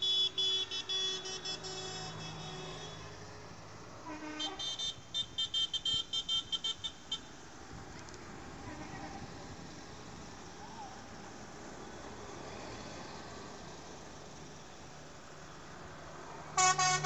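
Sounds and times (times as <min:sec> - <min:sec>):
high-pitched tractor horns tooting: 0:00.0 - 0:03.1, 0:04.0 - 0:07.4, 0:16.6 - 0:17.0.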